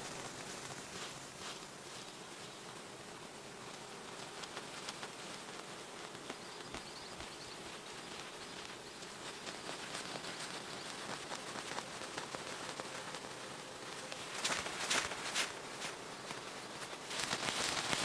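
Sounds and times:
light steps in undergrowth: 0.0 - 2.8, 3.6 - 18.0
faint insects buzzing: 0.0 - 18.0
rustling through ferns: 0.0 - 18.0.

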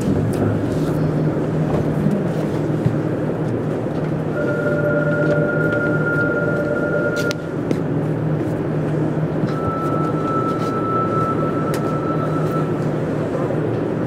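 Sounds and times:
train rolling rumble: 0.0 - 14.0
high steady inverter tone: 4.4 - 7.6, 9.4 - 12.8.

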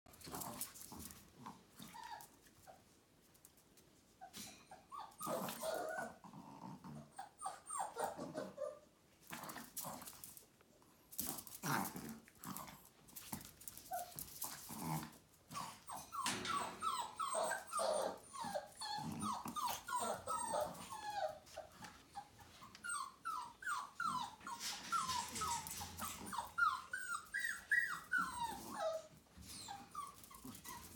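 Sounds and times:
puppies play growling: 0.1 - 2.8, 4.3 - 30.9
dogs yipping: 15.6 - 21.6, 22.9 - 30.9.

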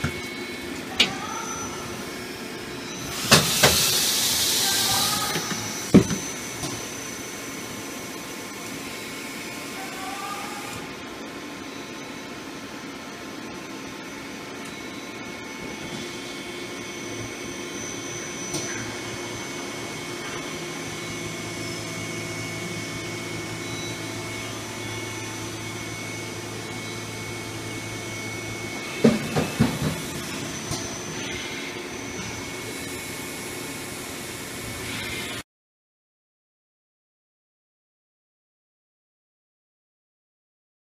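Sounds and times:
lathe whirring with high whine: 0.0 - 35.4
coolant spraying: 3.1 - 5.9
low hum: 14.9 - 35.4.

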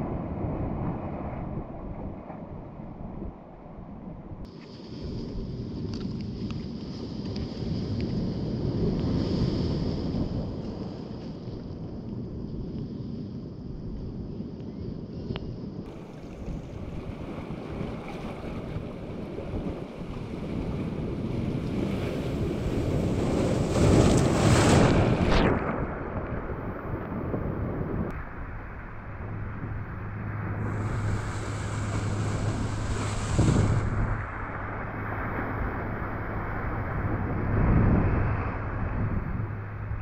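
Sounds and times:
wind buffeting microphone: 0.0 - 40.0
sea waves surging over rocks: 15.9 - 27.0, 28.2 - 40.0.

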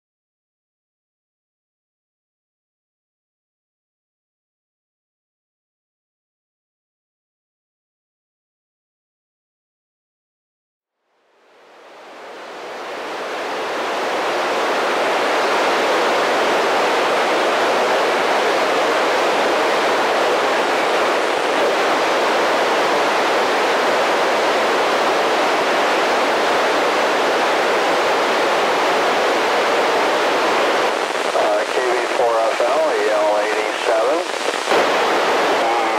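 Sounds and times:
radio static hiss: 12.0 - 35.9.

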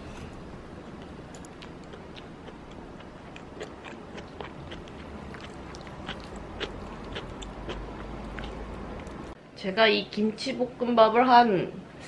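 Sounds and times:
person chewing: 0.7 - 9.4.

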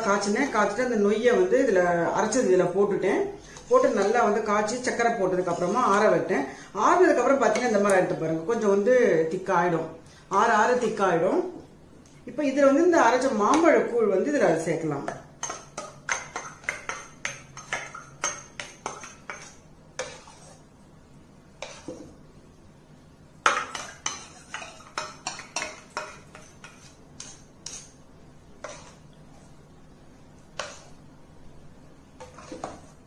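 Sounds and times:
spoon clinking on steel bowl: 15.4 - 20.3, 23.4 - 27.9.

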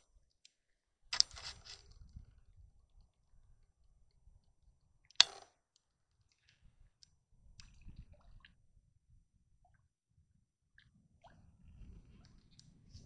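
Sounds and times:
small clicks: 0.4 - 2.0.

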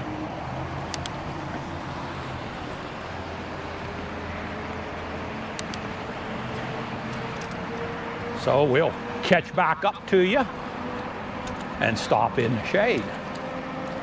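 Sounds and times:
road rumble: 0.0 - 14.0
vehicle engine hum: 0.0 - 14.0.

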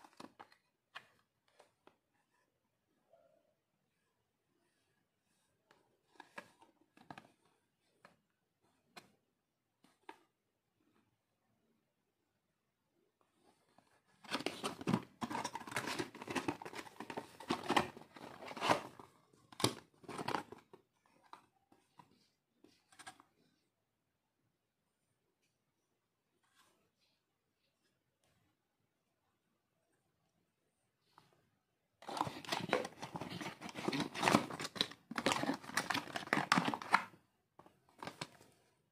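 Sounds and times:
cardboard rustling and scraping: 13.5 - 20.8, 32.0 - 37.0.

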